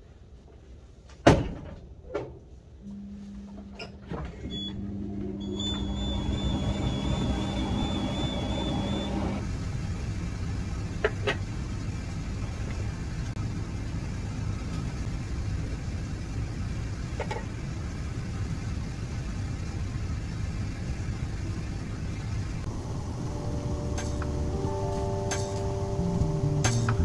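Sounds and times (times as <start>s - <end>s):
ventilation fan hum: 0.0s - 27.0s.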